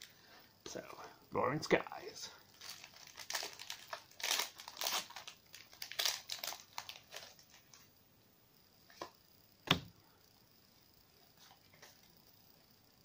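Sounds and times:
foil wrapper crinkling: 2.5s - 7.9s.

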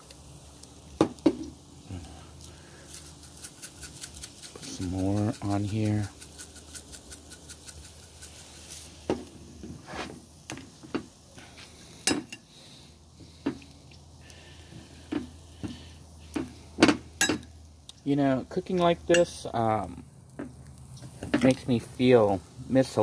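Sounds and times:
seasoning shaker rattling: 2.4s - 17.9s.

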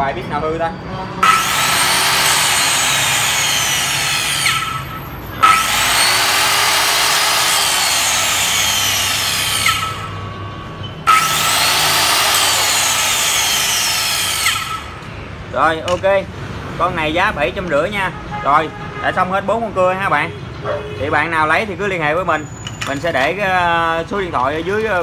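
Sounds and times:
circular saw whining: 1.2s - 15.2s.

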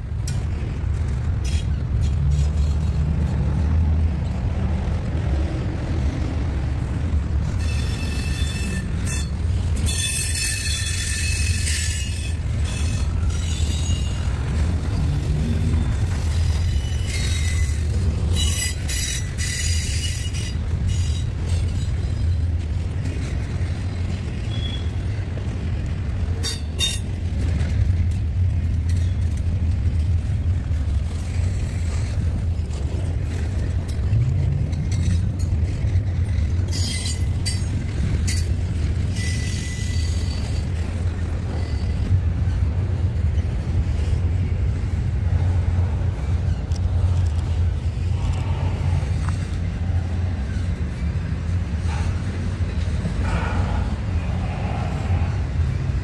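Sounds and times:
freight train rumbling: 0.0s - 56.0s
high-pitched wheel squeaks: 7.4s - 22.6s, 23.2s - 25.2s, 26.4s - 27.2s, 34.6s - 42.6s.

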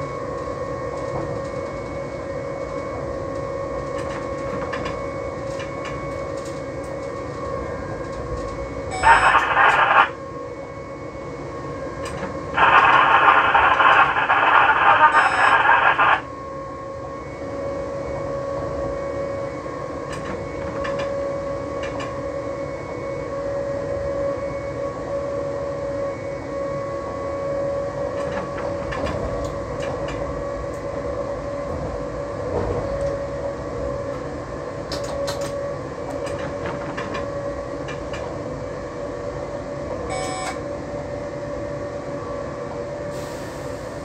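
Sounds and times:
cab radio transmissions: 9.0s - 10.2s, 12.6s - 16.3s.

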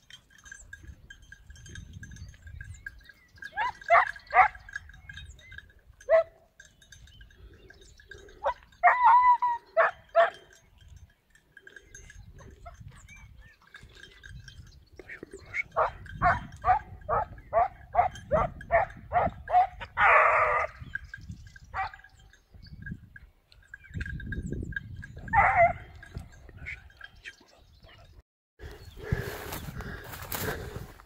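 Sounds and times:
dog barking: 3.6s - 4.6s, 6.1s - 6.4s, 8.4s - 10.5s, 15.8s - 20.7s, 25.3s - 25.9s.

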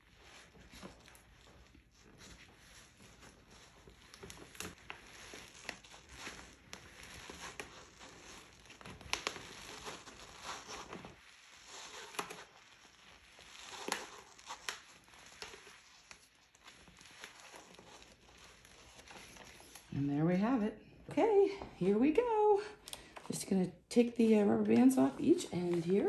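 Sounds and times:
plastic sheet crinkling: 0.0s - 20.0s, 24.3s - 26.0s
sharp plastic crackles: 0.2s - 20.0s.

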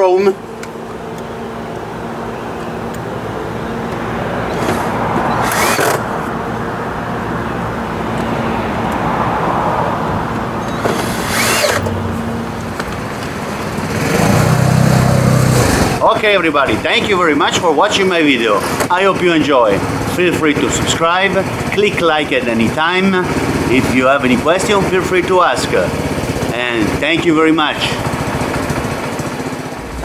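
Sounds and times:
cordless drill driving screws: 4.5s - 6.1s, 10.7s - 11.9s
louder low hum: 29.5s - 30.0s
steady low hum: 29.6s - 30.0s.

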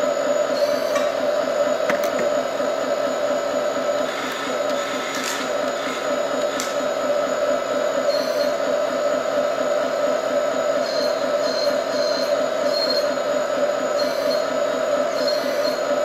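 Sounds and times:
toy excavator motors whirring: 4.0s - 6.8s, 13.9s - 15.9s.

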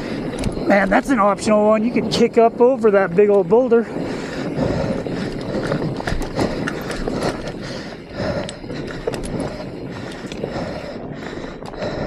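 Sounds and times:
bike knocking and clattering: 5.2s - 10.5s.

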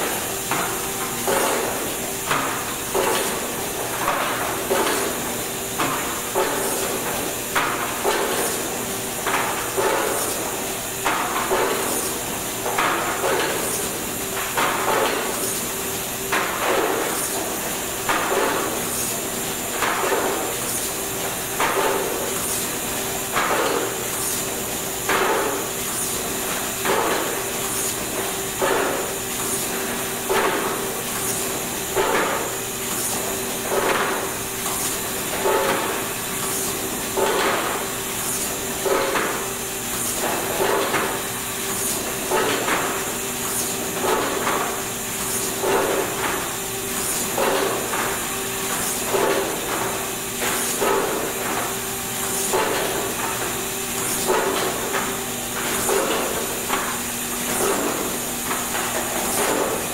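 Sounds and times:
pad printer humming and hissing: 0.0s - 59.9s.

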